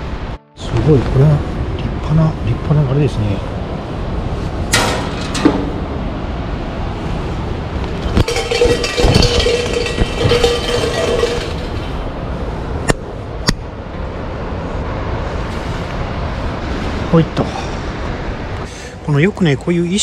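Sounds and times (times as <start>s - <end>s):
shrine bell jangling: 8.2s - 11.9s.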